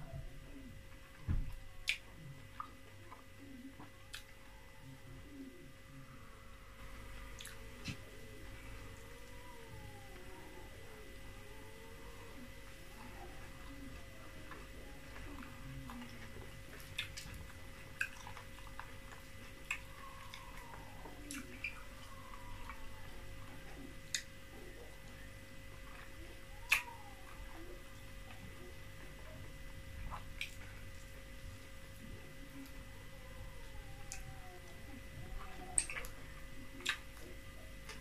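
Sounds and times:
faint steady hum: 0.0 - 38.0
soft chewing: 0.0 - 38.0.

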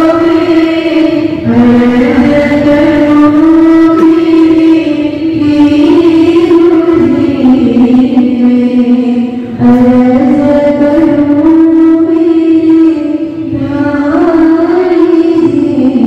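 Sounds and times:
voices singing a slow chant: 0.0 - 16.0.

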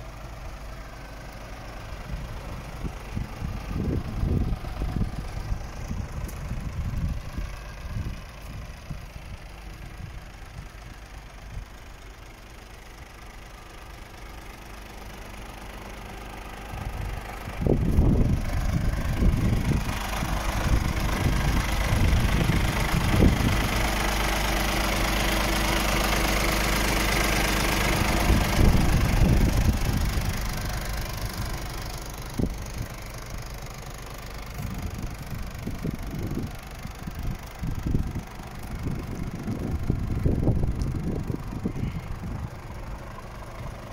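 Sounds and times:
truck diesel engine idling: 0.0 - 43.9
wind buffeting microphone: 2.0 - 11.8, 16.7 - 23.9, 27.9 - 33.0, 34.4 - 42.8.

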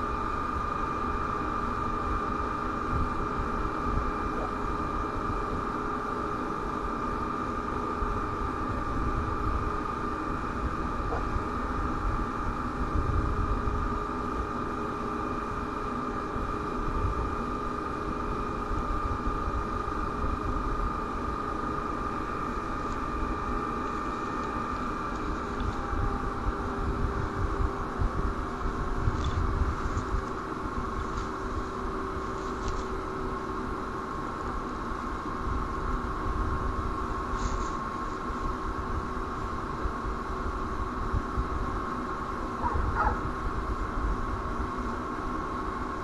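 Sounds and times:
constant high whine: 0.0 - 46.0.

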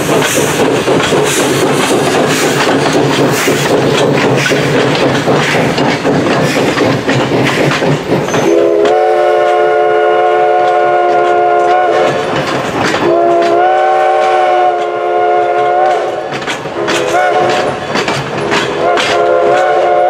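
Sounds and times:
passing coaches rumbling and clattering: 0.0 - 20.0
steam locomotive chime whistle: 8.2 - 18.0, 18.6 - 20.0.

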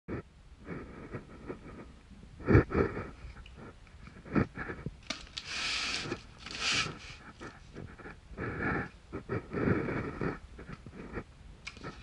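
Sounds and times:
paper rustling: 5.0 - 7.7.

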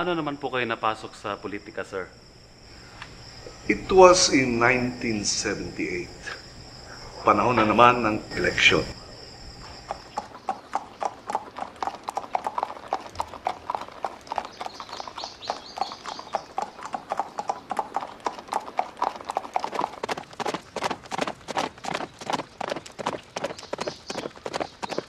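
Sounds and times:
hooves clip-clopping on gravel: 9.6 - 25.0.

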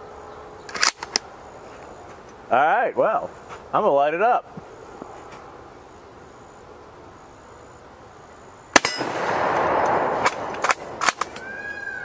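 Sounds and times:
rifle shot: 8.7 - 11.4
rolling echo: 8.8 - 12.0.

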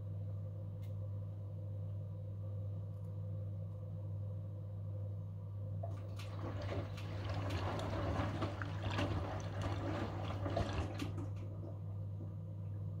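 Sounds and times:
steady low hum: 0.0 - 13.0
washing machine drum sloshing: 5.8 - 12.4.

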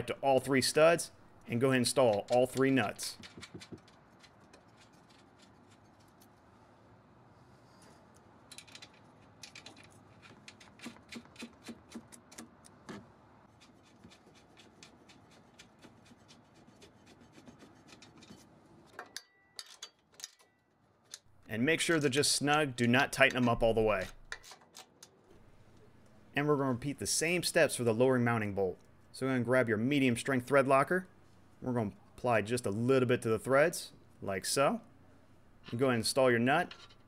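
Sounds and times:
small metallic clicks and scraping: 1.9 - 6.5, 7.7 - 12.8, 17.4 - 22.2, 23.2 - 25.9, 36.6 - 37.0.

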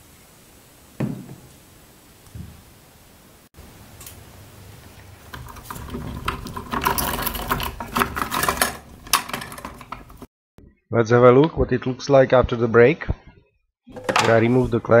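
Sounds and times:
metal clamps clicking and rattling: 5.3 - 10.3.

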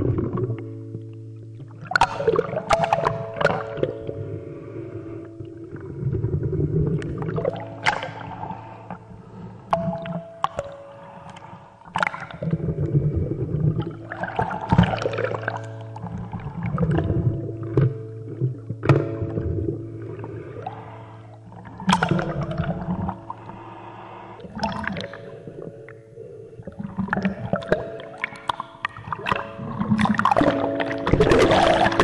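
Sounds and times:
bath water sloshing and gurgling: 11.3 - 19.9, 20.6 - 23.6, 24.4 - 25.6, 26.6 - 32.0.

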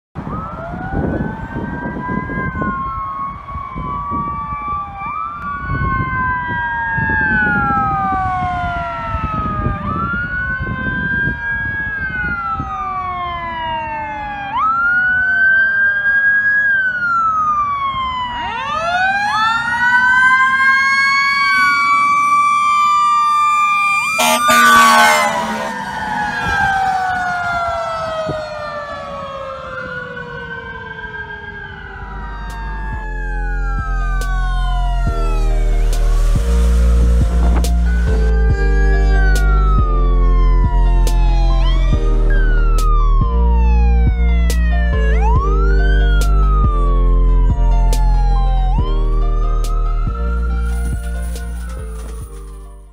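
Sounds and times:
fire engine siren wailing: 0.2 - 52.9
horn blast: 24.1 - 26.6.

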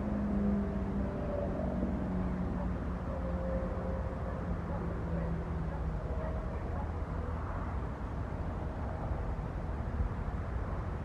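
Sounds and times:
distant engines rumbling: 0.0 - 11.0.

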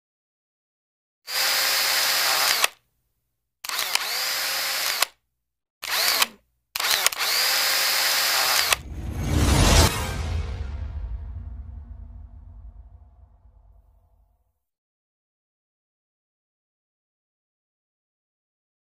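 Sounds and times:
small electric motor whirring: 1.3 - 2.8, 3.6 - 5.2, 5.8 - 8.8.

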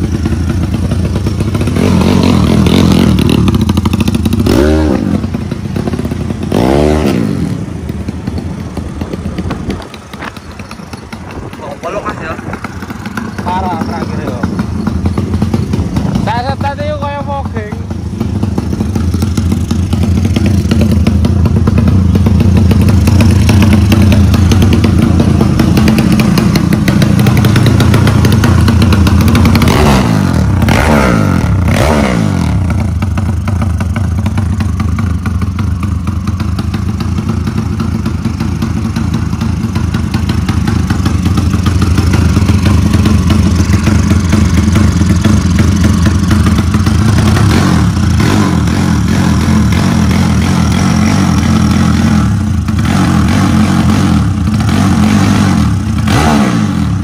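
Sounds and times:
loud motorcycle engine: 0.0 - 57.0.

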